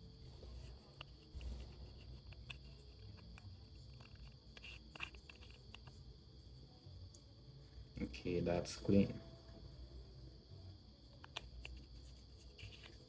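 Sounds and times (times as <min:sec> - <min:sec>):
faint high-pitched hum: 0:00.0 - 0:13.0.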